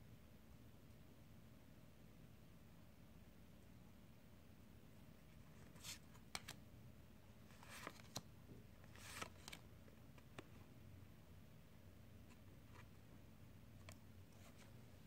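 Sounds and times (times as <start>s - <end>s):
cards sliding on cards: 5.5s - 6.6s, 7.5s - 10.5s, 13.8s - 14.8s.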